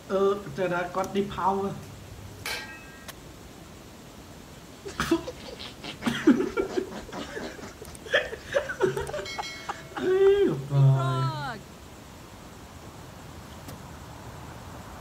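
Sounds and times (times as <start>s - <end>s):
man laughing: 4.8s - 11.6s.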